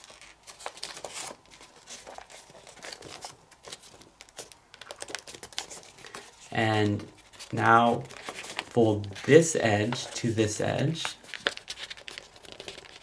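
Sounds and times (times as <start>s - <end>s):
paper rustling and crinkling: 0.0s - 13.0s.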